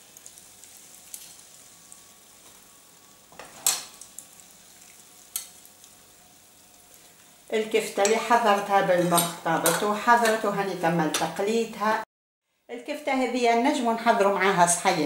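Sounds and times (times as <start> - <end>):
patty sizzling in oil: 0.0 - 10.4
metal spatula scraping pan: 8.0 - 10.5.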